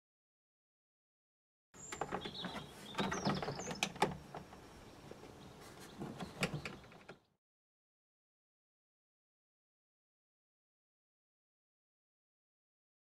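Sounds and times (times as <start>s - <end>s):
plastic panel clicks and rattles: 1.8s - 4.7s, 6.0s - 7.3s.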